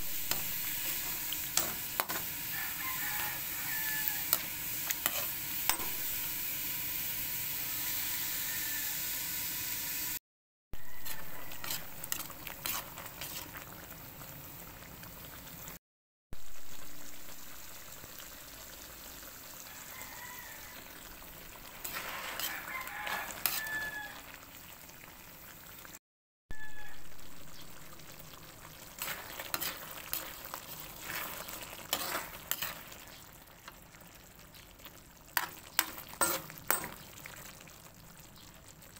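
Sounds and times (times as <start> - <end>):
food sizzling in a wok: 0.0 - 10.2, 10.8 - 15.8, 16.4 - 38.9
metal spatula scraping a pan: 0.1 - 6.2, 10.8 - 13.6, 21.6 - 24.1, 28.9 - 33.1, 35.4 - 37.0.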